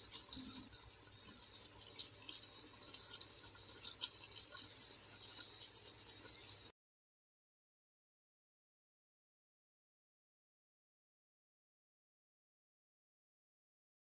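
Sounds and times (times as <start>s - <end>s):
chicken sizzling in a pan: 0.0s - 6.7s.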